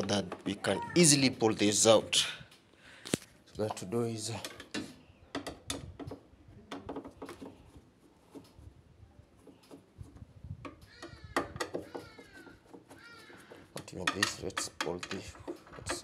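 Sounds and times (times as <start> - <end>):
plastic parts clicking and knocking: 0.0 - 0.8, 4.3 - 8.6, 9.4 - 16.0.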